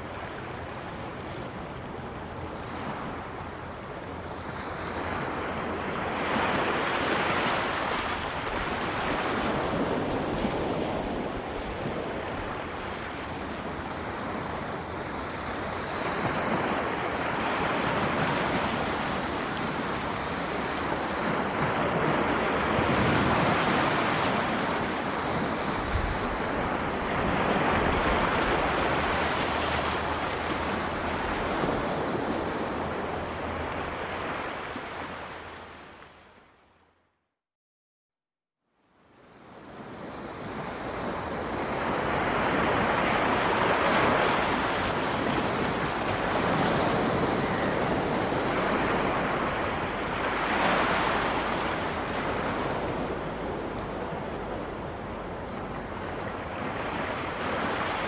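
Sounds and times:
sea surf washing onto shore: 39.9 - 58.0.

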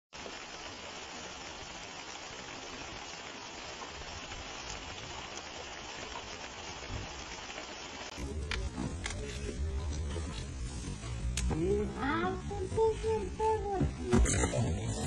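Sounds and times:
heavy rain falling: 0.2 - 15.0
low rumble: 8.2 - 15.0.

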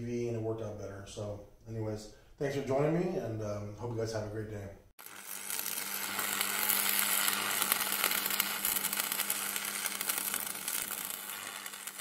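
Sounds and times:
crackling glitch noise: 5.0 - 12.0.

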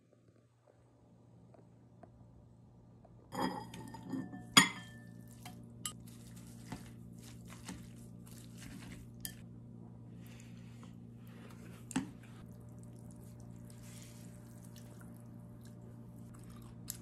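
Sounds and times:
tableware clinking on ceramic bowl: 3.3 - 5.2
noodles being mixed in bowl: 5.1 - 9.4, 11.3 - 17.0.

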